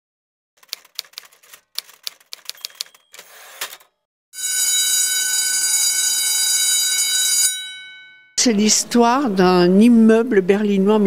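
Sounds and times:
typewriter keys clacking: 0.6s - 3.9s
typewriter carriage rasping sweep: 0.6s - 4.0s
loud steady ringing tone: 4.4s - 8.8s.

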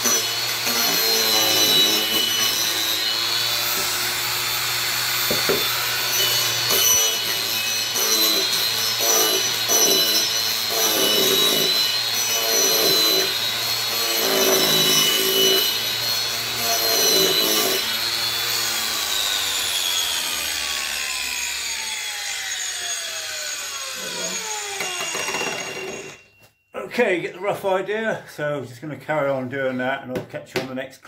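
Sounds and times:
angle grinder motor whine: 0.0s - 26.4s
disc grinding wood: 22.0s - 26.2s.

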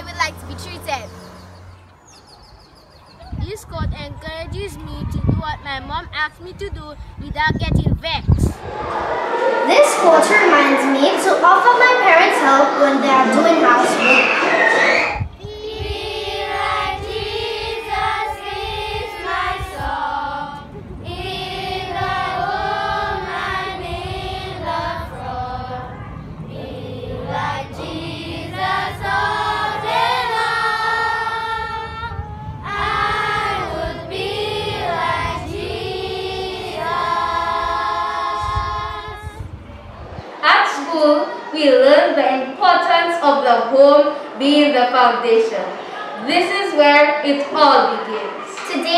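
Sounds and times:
children singing in unison: 12.2s - 39.4s.

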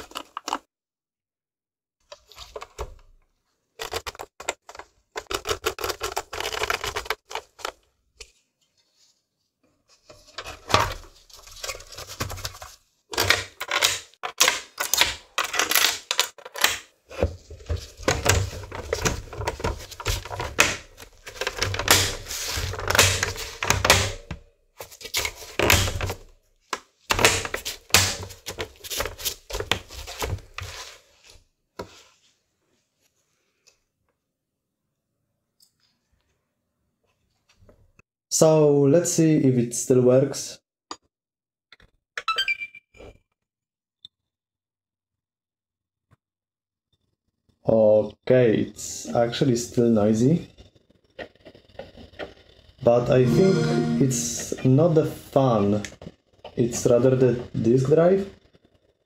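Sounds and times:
plastic parts clicking and scraping: 0.0s - 0.7s, 3.8s - 8.4s, 10.1s - 16.9s.

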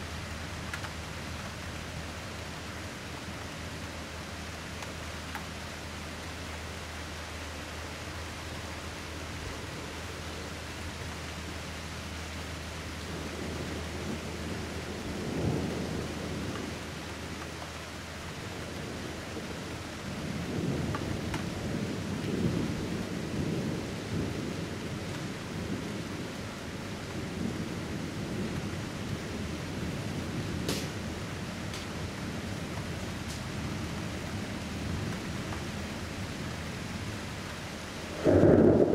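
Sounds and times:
thunder rumbling: 13.0s - 37.0s, 37.8s - 38.9s.

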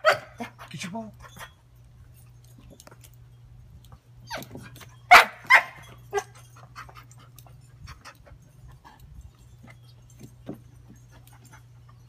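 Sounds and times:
dog barking: 0.0s - 0.5s, 5.1s - 6.3s
dog whining: 4.2s - 6.5s.

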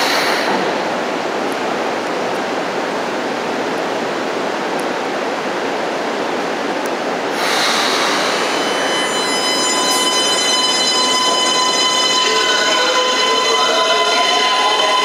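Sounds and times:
loud hiss: 0.0s - 1.0s, 7.3s - 9.1s
train equipment rushing noise: 7.3s - 15.0s.

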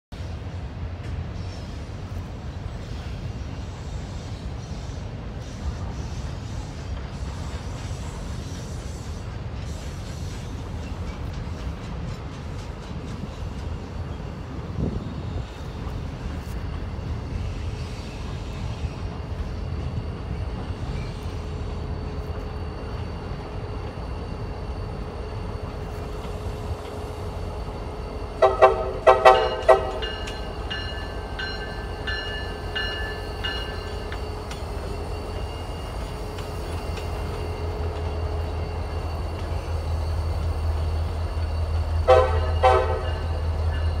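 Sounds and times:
diesel locomotives rumbling: 0.1s - 44.0s
train air horn blasts: 28.4s - 30.1s, 42.0s - 43.3s.

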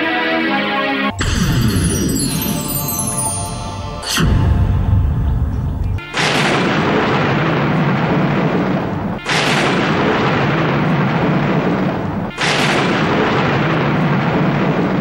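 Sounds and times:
explosions with hissing rumble: 4.2s - 15.0s.

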